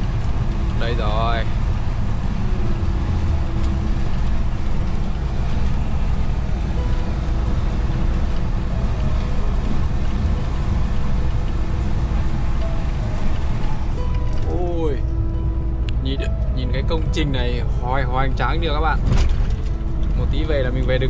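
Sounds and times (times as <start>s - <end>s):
road noise: 0.0s - 21.0s
truck engine rumble: 0.0s - 21.0s.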